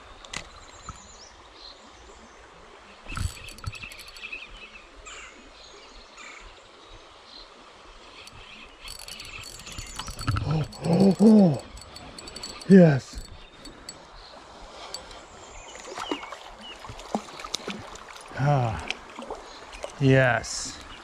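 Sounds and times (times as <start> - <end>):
steady outdoor hiss: 0.0 - 21.0
rapid clicking: 3.1 - 4.2, 8.3 - 14.0.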